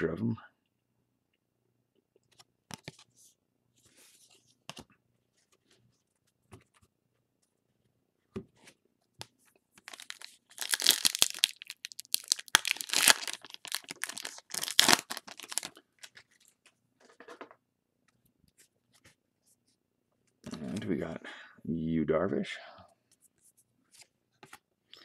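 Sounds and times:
foil pack tearing and crinkling: 0:09.9 - 0:15.8.

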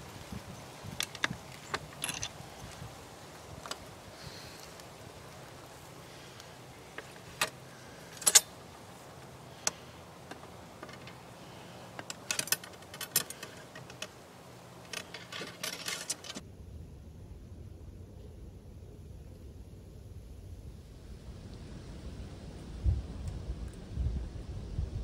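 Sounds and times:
metallic clicks and jingling: 0:00.9 - 0:02.8, 0:07.0 - 0:08.6, 0:11.9 - 0:14.2, 0:14.8 - 0:16.4.

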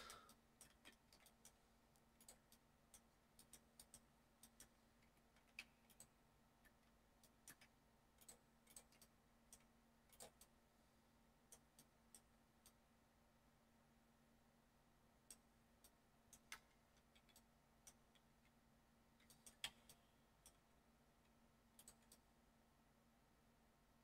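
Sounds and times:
mouse and keyboard clicks: 0:00.0 - 0:10.6, 0:15.3 - 0:18.3, 0:19.2 - 0:20.6, 0:21.8 - 0:22.3
faint low hum: 0:00.0 - 0:24.0.

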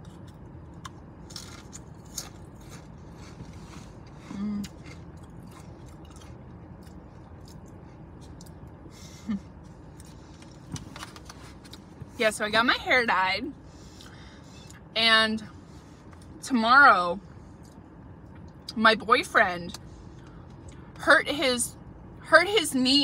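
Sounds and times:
soft chewing: 0:00.0 - 0:12.2, 0:17.4 - 0:18.7
steady low hum: 0:00.0 - 0:23.0
short hummed voice: 0:04.2 - 0:04.8.

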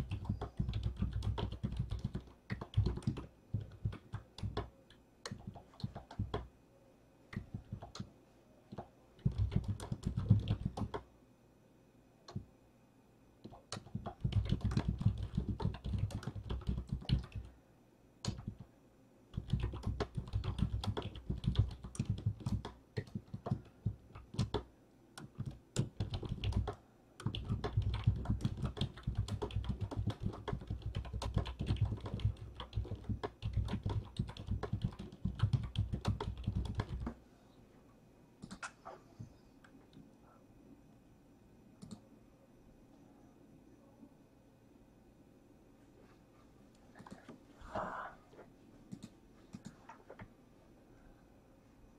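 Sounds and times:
fast typing on keyboard: 0:00.0 - 0:04.7, 0:05.3 - 0:06.5, 0:07.4 - 0:08.1, 0:08.7 - 0:11.0, 0:13.5 - 0:17.5, 0:18.2 - 0:18.7, 0:19.3 - 0:37.2.

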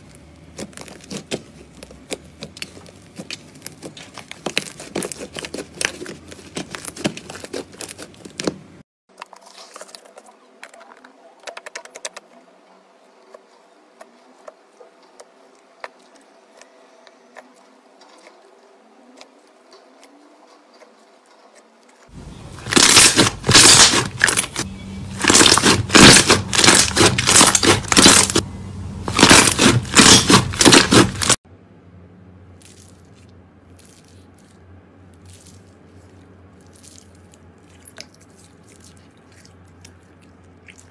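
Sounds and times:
hands squishing slime: 0:00.0 - 0:08.7, 0:22.5 - 0:24.6, 0:25.2 - 0:28.4, 0:29.1 - 0:31.4, 0:35.2 - 0:40.9.

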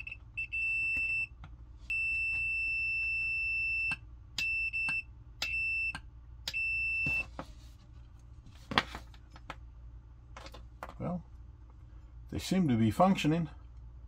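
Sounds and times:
multimeter continuity beeps: 0:00.0 - 0:07.3.

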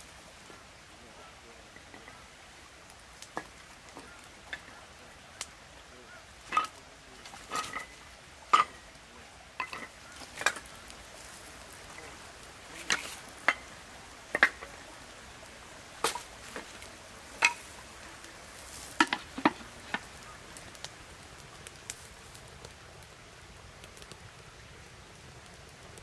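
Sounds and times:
firewood sticks knocking together: 0:03.2 - 0:04.8, 0:06.4 - 0:09.0, 0:09.6 - 0:15.0, 0:15.8 - 0:20.9.

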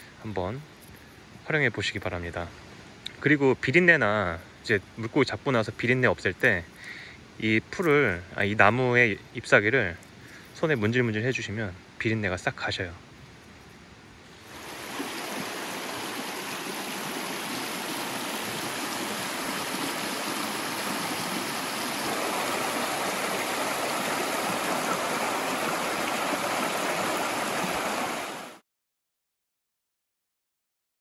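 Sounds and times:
stream rushing over stones: 0:14.4 - 0:28.6.

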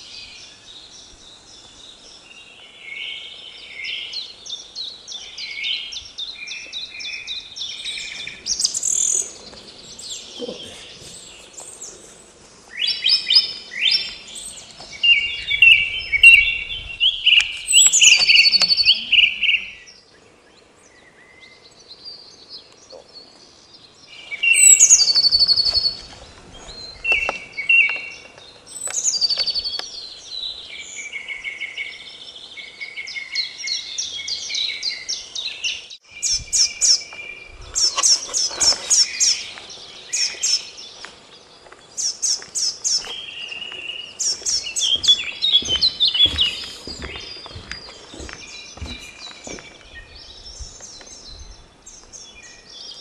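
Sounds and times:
songbirds singing: 0:00.0 - 0:53.0.

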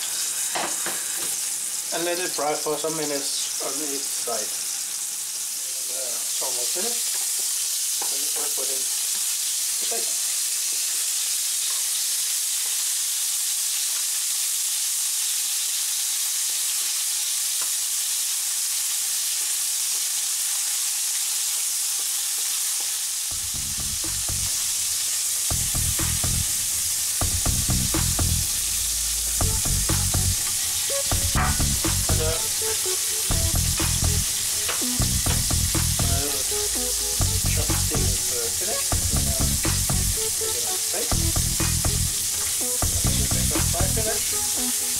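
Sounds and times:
meat sizzling in frying pan: 0:00.0 - 0:44.9
background music with steady beat: 0:23.3 - 0:44.9.

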